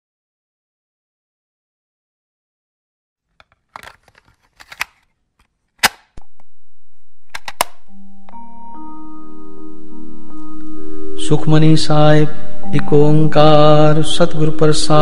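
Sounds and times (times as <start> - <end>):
cassette rattling into tape deck: 3.4 - 5.0, 7.4 - 7.8
play key clunking down: 7.3 - 7.8
cassette door snapping shut: 7.4 - 7.8.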